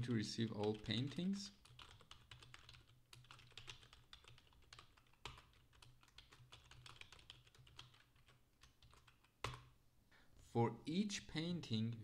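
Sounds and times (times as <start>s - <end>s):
computer keyboard typing: 0.5s - 9.7s.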